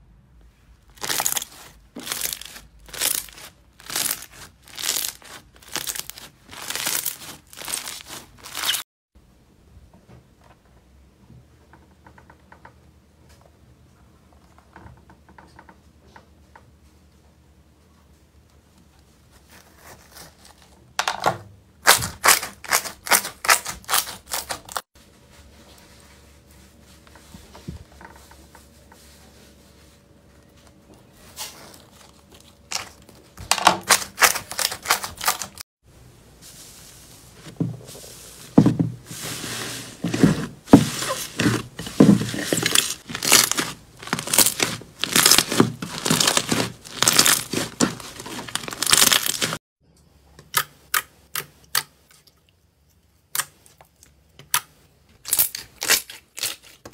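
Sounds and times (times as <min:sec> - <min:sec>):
slime popping and crackling: 0:00.9 - 0:08.8, 0:33.7 - 0:35.6, 0:42.0 - 0:49.6.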